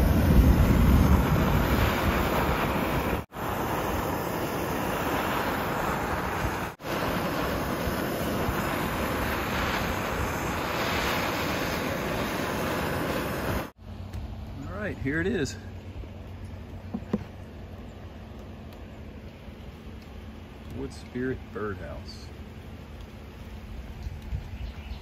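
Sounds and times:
propane torch hissing: 0.0 - 13.8.

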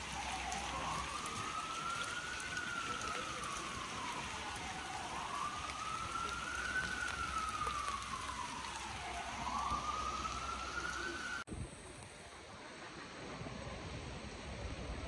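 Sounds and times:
emergency siren wailing: 0.0 - 11.5
heavy rain on pavement: 0.0 - 15.0.

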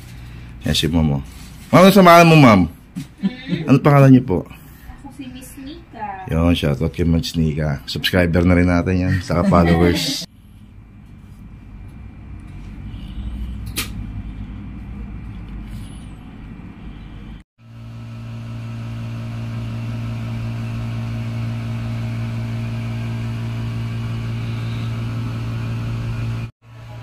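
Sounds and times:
machine hum: 9.1 - 27.0.

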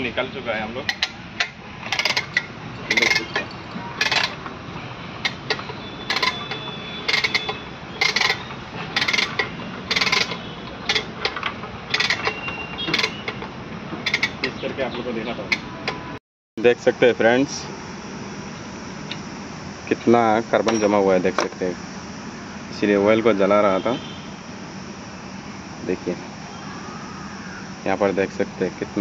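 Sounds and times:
hoist chain rattling: 0.8 - 4.6, 5.2 - 14.7
ratchet clicking: 0.8 - 4.6, 5.2 - 14.8.

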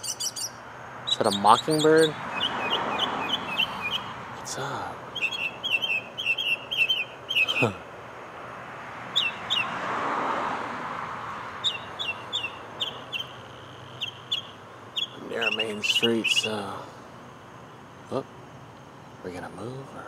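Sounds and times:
mockingbird chirping: 0.0 - 8.1, 9.0 - 9.8, 11.5 - 18.3
traffic noise: 0.0 - 20.0.

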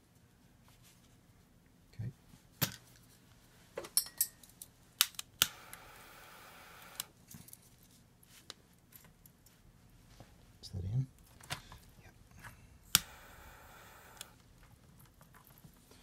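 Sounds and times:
soldering flux sizzling: 5.0 - 7.2, 12.7 - 14.6.

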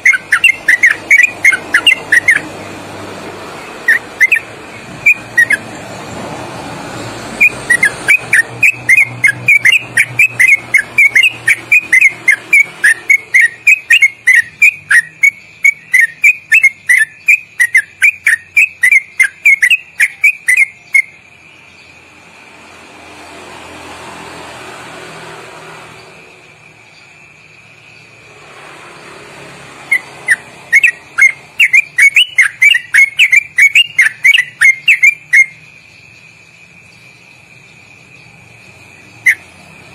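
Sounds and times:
bird singing whistled notes: 0.0 - 2.6, 3.6 - 5.8, 7.3 - 22.0, 29.8 - 36.2, 36.8 - 39.6.

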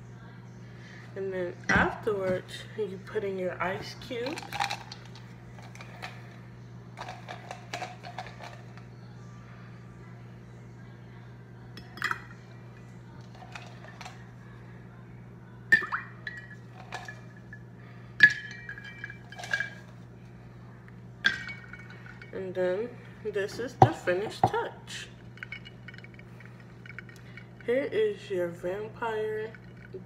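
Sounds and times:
low hum: 0.0 - 30.0
ice cubes clinking in cup: 4.2 - 6.2, 7.0 - 8.7, 13.2 - 14.2, 15.8 - 17.5, 18.2 - 20.0, 21.3 - 22.3.

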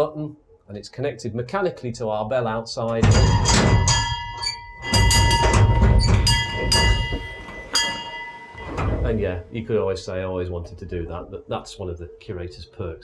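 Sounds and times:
locomotive bell clanging: 3.0 - 9.5.

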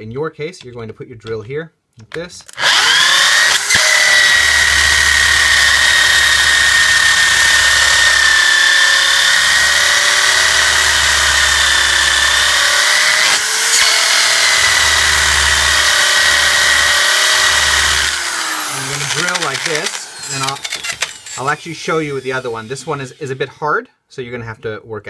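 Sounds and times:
electric drill boring metal: 2.5 - 23.6.

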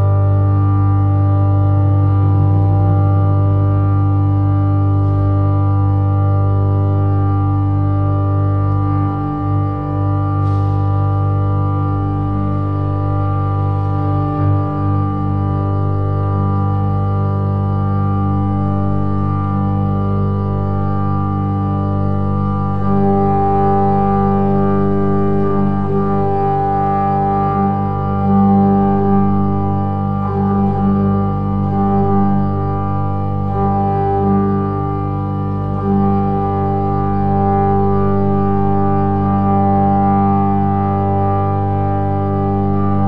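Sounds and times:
ambient organ-like chord: 0.0 - 43.0
higher shifting notes: 2.0 - 4.0.

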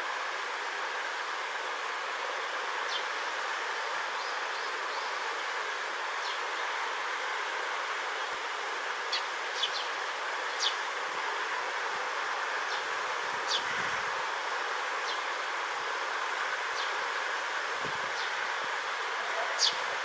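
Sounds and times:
steady background hiss: 0.0 - 20.0
sparrows chirping: 9.1 - 10.8, 13.5 - 13.8, 19.4 - 19.9.

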